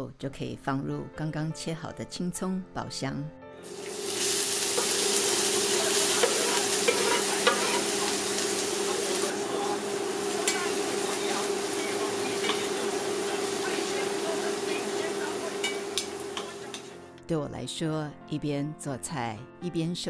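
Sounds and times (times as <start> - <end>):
scallions sizzling in hot oil: 3.6 - 17.0
wooden spatula stirring: 3.7 - 17.0.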